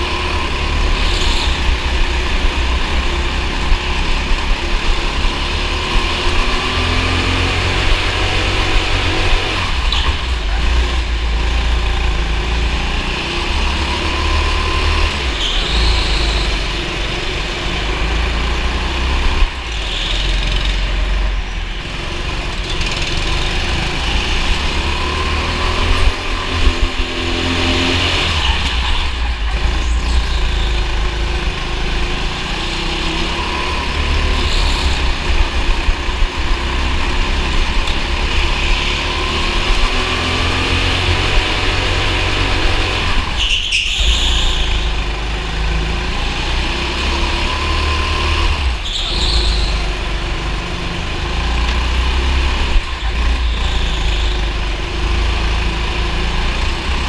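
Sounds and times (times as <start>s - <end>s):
go-kart engine running: 0.0s - 57.0s.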